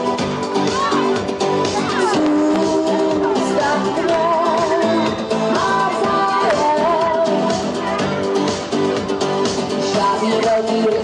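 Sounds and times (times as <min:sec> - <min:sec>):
pop backing music: 0:00.0 - 0:11.0
woman singing into microphone: 0:01.9 - 0:08.0.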